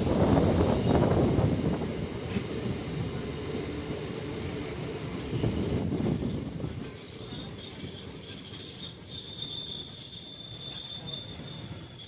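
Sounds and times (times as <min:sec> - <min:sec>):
insects buzzing: 0:05.8 - 0:12.0.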